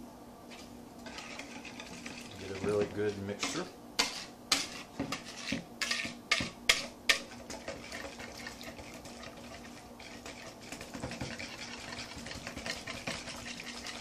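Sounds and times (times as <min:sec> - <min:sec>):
whisk swishing liquid: 0:00.5 - 0:14.0
whisk clicking against bowl: 0:05.9 - 0:14.0.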